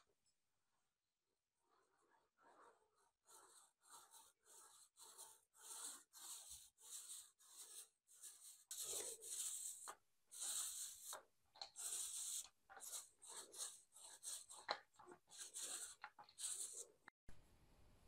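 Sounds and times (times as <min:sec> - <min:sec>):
paint roller rasping on wall: 0:03.2 - 0:17.0.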